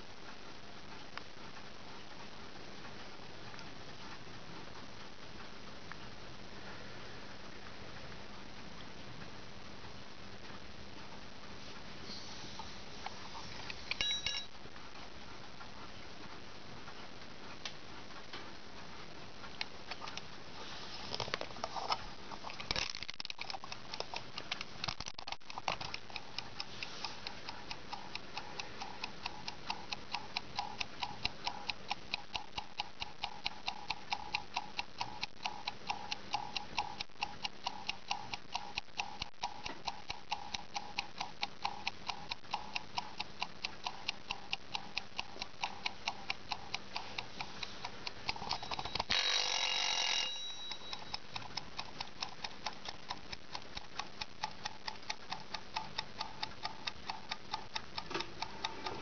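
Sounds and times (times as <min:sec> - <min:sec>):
timer bell ring: 0:14.0 - 0:14.5, 0:48.5 - 0:51.2
clockwork ticking: 0:22.8 - 0:59.0
timer knob clicks: 0:23.1 - 0:59.0.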